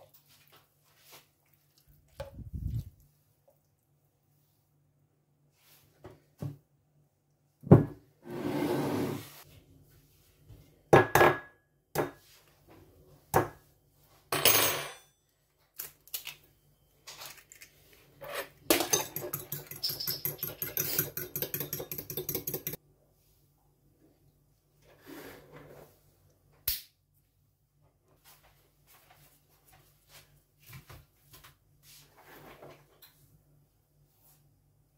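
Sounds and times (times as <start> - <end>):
fork beating egg in glass: 18.7 - 22.8.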